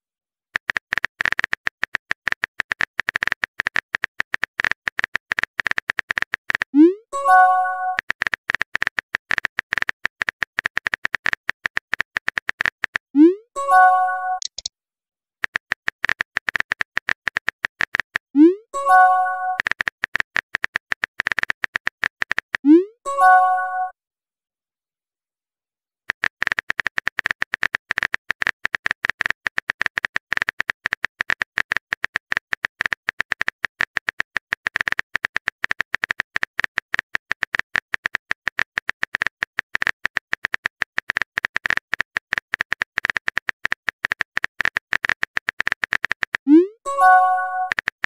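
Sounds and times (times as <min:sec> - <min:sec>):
keyboard tap clicks: 0:14.4 - 0:14.7.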